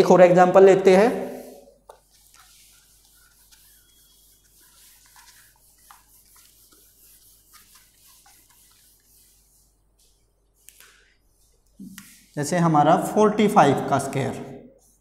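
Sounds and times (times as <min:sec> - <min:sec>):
eraser wiping whiteboard: 0:00.9 - 0:12.7.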